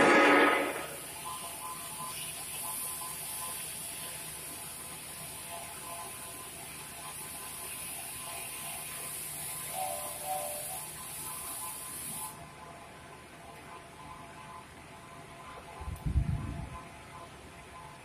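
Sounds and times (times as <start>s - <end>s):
cutting torch hissing: 0.0s - 12.4s
faint steady tones: 0.0s - 18.0s.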